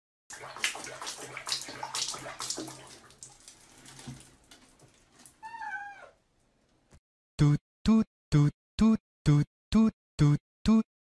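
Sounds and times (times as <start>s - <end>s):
water splashing in a plastic basin: 0.3s - 5.5s.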